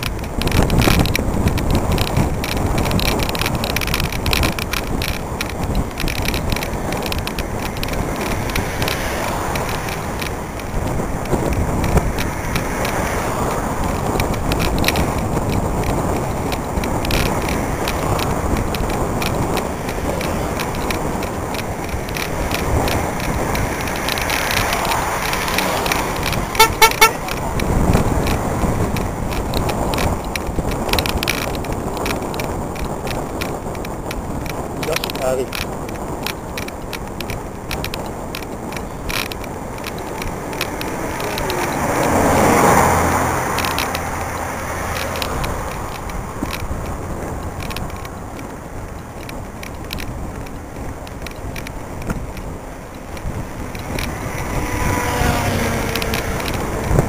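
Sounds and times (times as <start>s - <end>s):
bike clicks and rattles: 0.0s - 57.0s
tyre noise on asphalt: 0.0s - 57.0s
wind buffeting camera: 0.0s - 57.0s
short horn toot: 26.6s - 27.2s.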